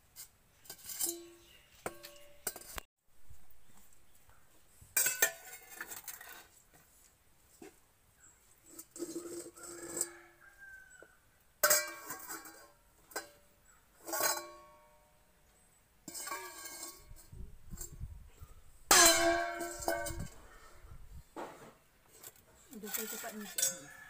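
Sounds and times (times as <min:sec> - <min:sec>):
steel bowls clanging: 0:11.6 - 0:13.3, 0:16.1 - 0:17.2, 0:18.9 - 0:20.4, 0:22.2 - 0:23.9.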